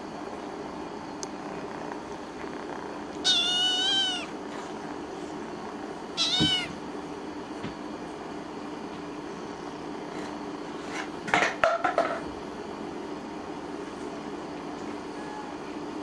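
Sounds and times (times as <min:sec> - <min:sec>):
kitten meowing: 0:03.2 - 0:04.4, 0:06.1 - 0:06.8.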